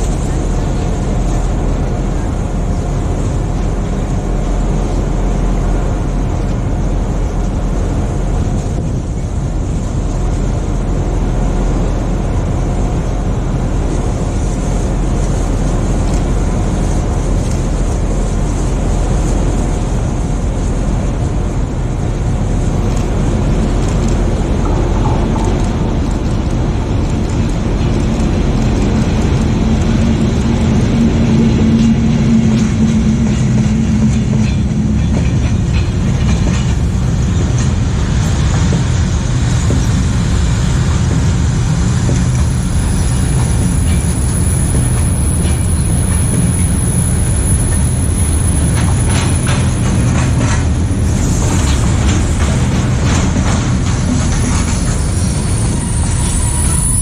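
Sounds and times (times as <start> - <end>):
freight train rumbling past: 0.0 - 57.0
wheels clicking over rail joints: 0.0 - 57.0.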